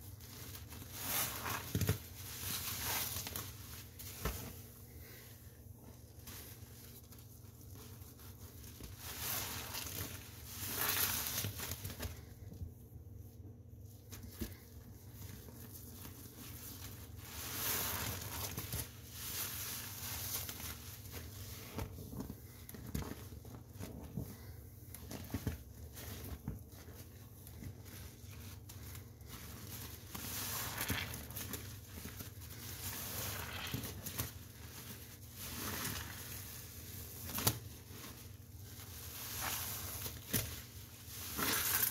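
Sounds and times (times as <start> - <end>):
soapy sponge squishing: 0.0 - 41.9.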